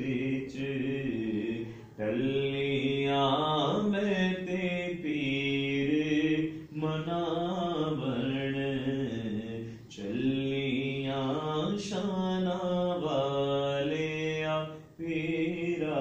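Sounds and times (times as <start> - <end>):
man chanting: 0.0 - 16.0.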